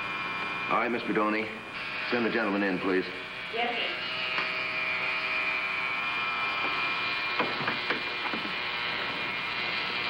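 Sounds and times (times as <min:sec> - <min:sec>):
electric razor buzzing: 0:00.0 - 0:10.0.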